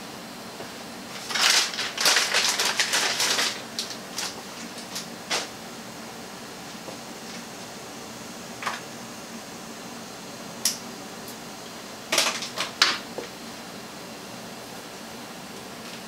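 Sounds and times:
faint room hum: 0:00.0 - 0:16.0.

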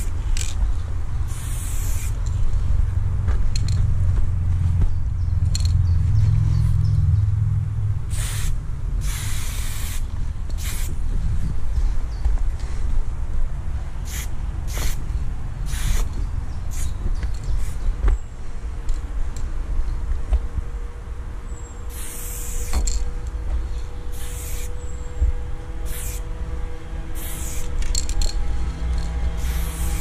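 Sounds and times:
spray paint can hissing: 0:00.0 - 0:00.5, 0:01.3 - 0:02.4, 0:08.1 - 0:11.0, 0:14.0 - 0:15.0, 0:15.7 - 0:16.1, 0:16.7 - 0:16.9, 0:21.9 - 0:22.9, 0:24.1 - 0:24.7, 0:25.8 - 0:26.2, 0:27.2 - 0:28.3, 0:29.0 - 0:30.0
low rumble: 0:00.0 - 0:21.9, 0:22.6 - 0:30.0.

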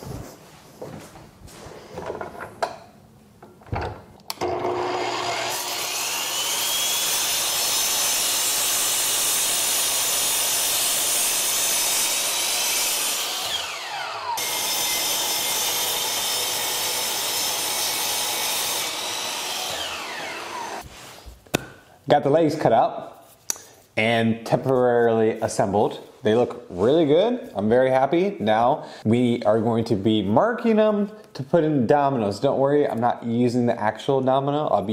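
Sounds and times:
miter saw motor whining: 0:04.4 - 0:07.7, 0:12.2 - 0:20.8.

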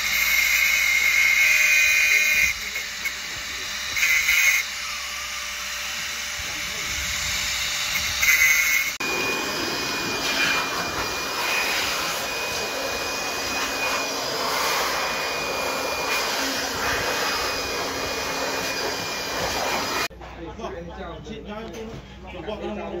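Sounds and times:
angle grinder cutting steel: 0:00.0 - 0:20.1
machinery whine with hiss: 0:02.1 - 0:20.1.

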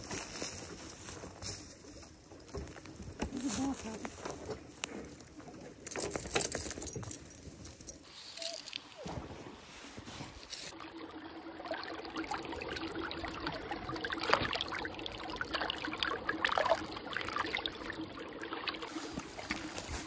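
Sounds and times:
stream trickling and babbling: 0:01.0 - 0:20.0
water splashes: 0:08.5 - 0:20.0.

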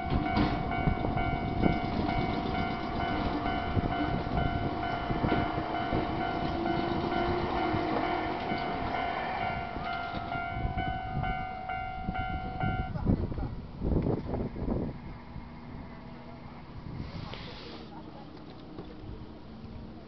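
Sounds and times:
level-crossing alarm dinging: 0:00.0 - 0:13.0
electric train rumbling past: 0:00.0 - 0:17.2.

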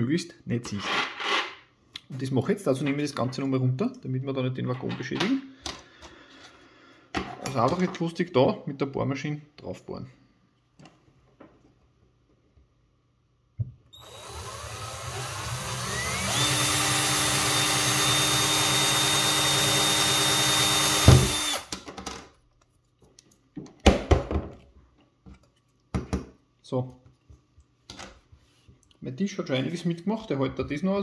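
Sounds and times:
electric drill whining: 0:13.9 - 0:21.7.

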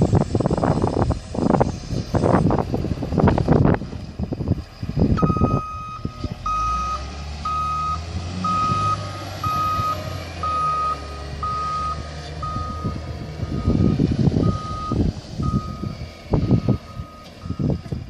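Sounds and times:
diesel engine running: 0:00.0 - 0:18.0
reversing alarm beeping: 0:04.2 - 0:18.0.

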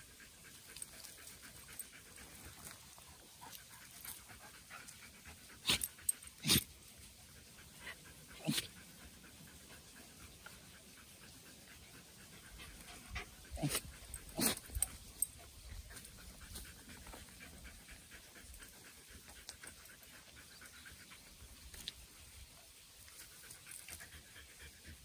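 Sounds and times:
dog panting: 0:00.0 - 0:22.1, 0:23.1 - 0:25.0.

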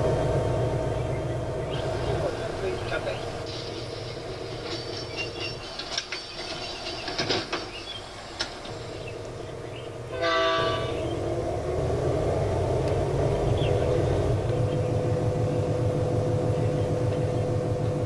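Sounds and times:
train running rumble: 0:00.0 - 0:18.0
train horn blast: 0:09.8 - 0:11.4.

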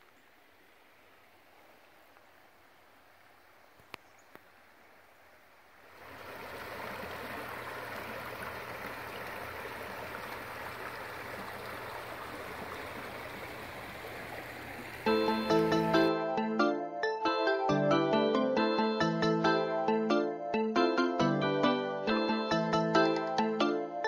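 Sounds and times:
creek water over gravel: 0:00.0 - 0:16.1
music: 0:15.1 - 0:24.0.

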